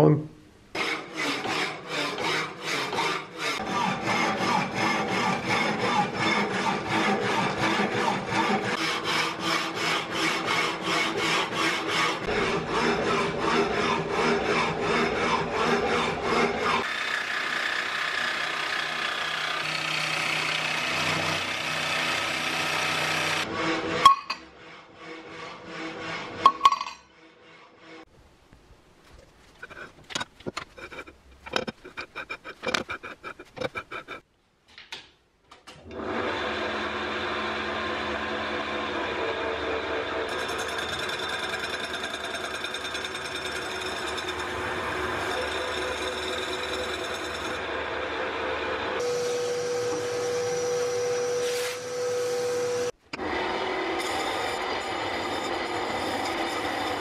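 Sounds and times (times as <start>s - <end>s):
lathe tool scraping metal: 23.1s - 28.1s, 29.6s - 34.2s, 40.3s - 47.8s.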